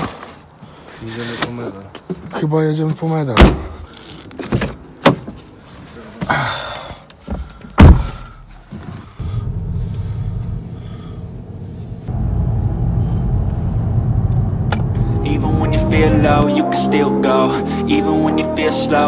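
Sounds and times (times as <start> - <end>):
car door slamming: 3.4 - 5.4, 7.7 - 8.3
car engine starting and rumbling: 8.9 - 16.4.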